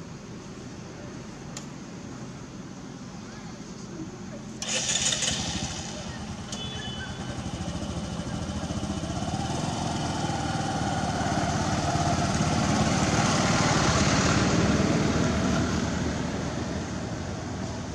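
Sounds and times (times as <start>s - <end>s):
small motorcycle engine running: 4.6s - 15.5s.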